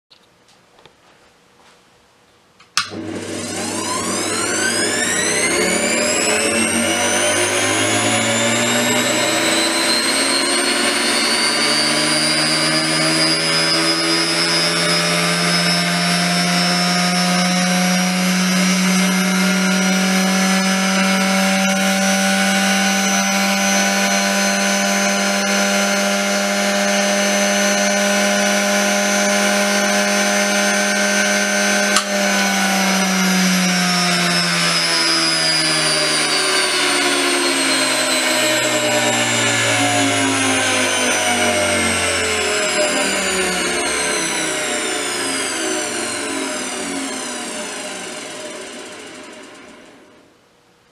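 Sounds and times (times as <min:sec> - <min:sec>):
rotary converter motor whine: 0:02.8 - 0:50.2.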